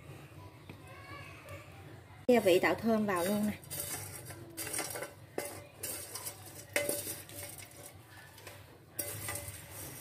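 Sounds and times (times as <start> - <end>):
spatula scraping spices in a pan: 2.3 - 10.0
spices rattling: 2.3 - 10.0.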